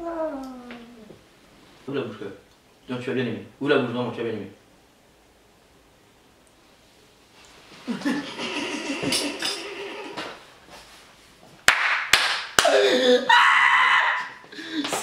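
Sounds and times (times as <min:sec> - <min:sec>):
boys groaning in disgust: 0:00.0 - 0:01.2, 0:12.6 - 0:13.4
boys laughing: 0:07.8 - 0:10.4
sharp slaps: 0:11.7 - 0:12.8.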